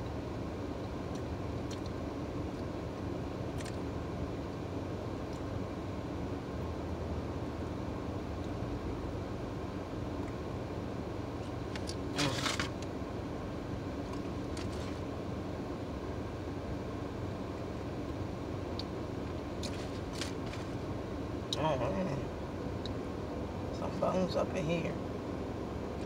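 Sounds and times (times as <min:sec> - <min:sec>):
car engine hum from inside: 0:00.0 - 0:26.0
mouth and chewing clicks: 0:01.1 - 0:02.0.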